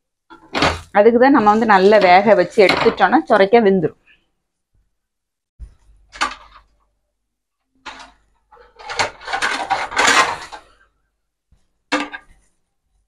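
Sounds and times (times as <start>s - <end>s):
kitchen utensils clattering: 0.3s - 3.5s, 7.8s - 10.8s, 11.9s - 12.4s.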